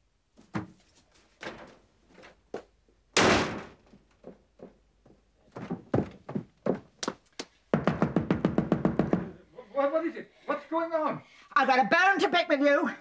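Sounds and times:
door slamming shut: 0:03.2 - 0:03.8
light knocks and thuds: 0:03.4 - 0:06.9.

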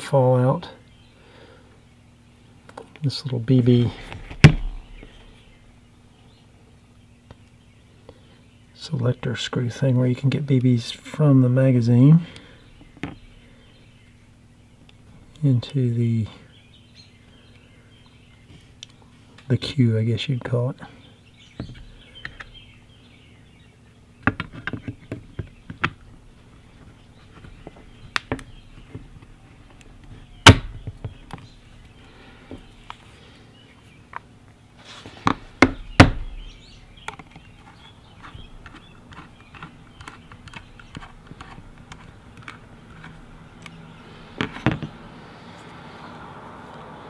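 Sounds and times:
air gun parts clicking and knocking: 0:38.4 - 0:43.8.

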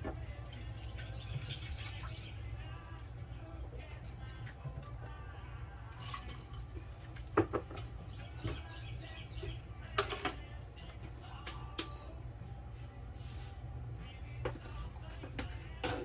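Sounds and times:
utensils clinking on dishes: 0:00.0 - 0:02.3, 0:05.9 - 0:06.8
steady low hum: 0:00.0 - 0:16.0.

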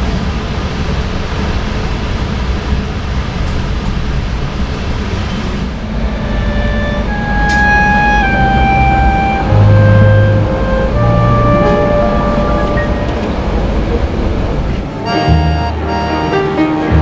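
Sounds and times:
passenger train rumbling: 0:00.0 - 0:17.0
held musical notes: 0:05.8 - 0:17.0.

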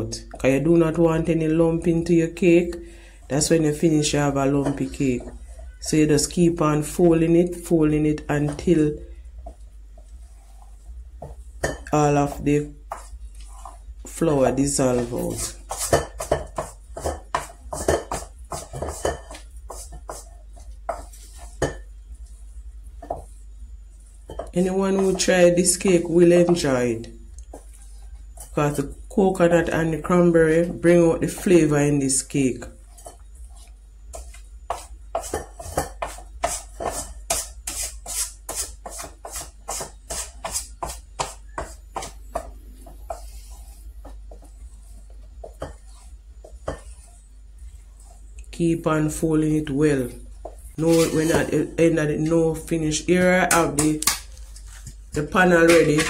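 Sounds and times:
spoon scraping metal mixing bowl: 0:10.0 - 0:22.3, 0:23.0 - 0:49.2, 0:50.0 - 0:53.7
spoon scraping metal bowl: 0:14.8 - 0:21.8, 0:50.7 - 0:51.7.

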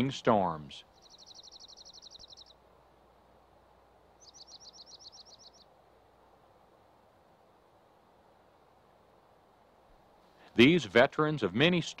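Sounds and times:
faint background hiss: 0:00.0 - 0:12.0
songbird trilling: 0:00.9 - 0:02.6, 0:04.2 - 0:05.7.

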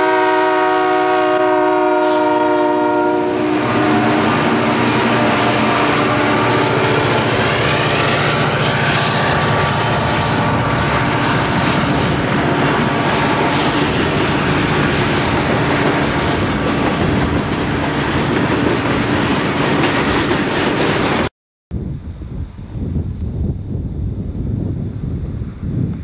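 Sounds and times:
freight train wheels clattering: 0:04.2 - 0:21.3.

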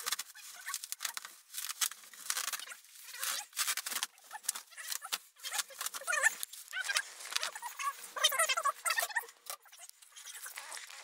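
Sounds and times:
bubble wrap crackling: 0:00.0 - 0:11.0.

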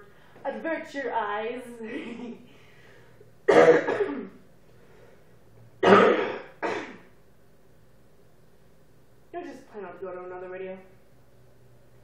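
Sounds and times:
woman coughing: 0:03.5 - 0:04.4, 0:05.8 - 0:07.1.

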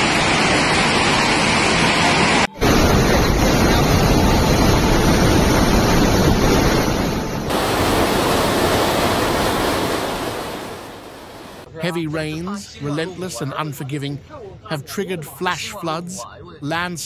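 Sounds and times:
flood torrent rushing: 0:00.0 - 0:11.7.

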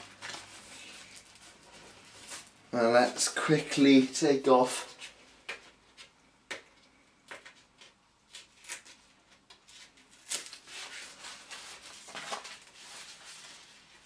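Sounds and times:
plastic sheet rustling: 0:00.0 - 0:05.0, 0:08.4 - 0:14.0.

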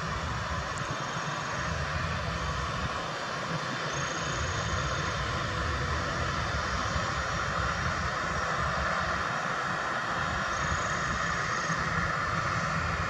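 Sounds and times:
faint high whine: 0:00.0 - 0:13.0
jet engines roaring: 0:00.0 - 0:13.0.

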